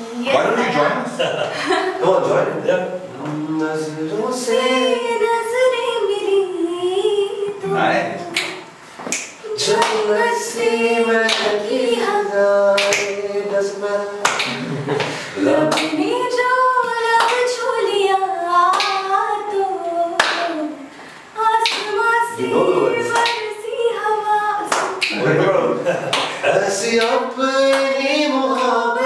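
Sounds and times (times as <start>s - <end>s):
voices singing a cappella: 0.0s - 29.0s
hand claps: 8.4s - 10.1s, 11.2s - 11.6s, 12.8s - 13.2s, 14.2s - 16.0s, 17.2s - 17.5s, 18.7s - 19.1s, 20.2s - 20.6s, 21.6s - 22.0s, 23.1s - 23.5s, 24.6s - 25.3s, 26.1s - 26.4s, 27.0s - 28.7s.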